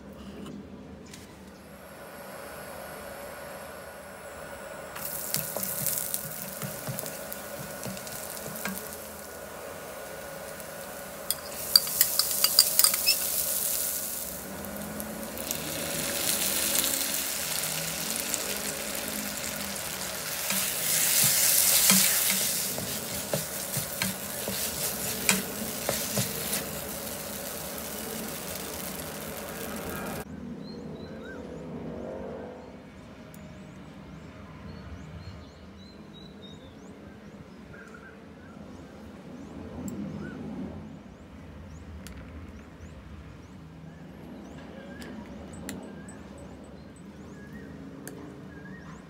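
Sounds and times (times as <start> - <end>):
rice sizzling in a wok: 1.6 - 30.3
spatula scraping pan: 5.0 - 9.4, 10.4 - 14.8, 15.4 - 30.2.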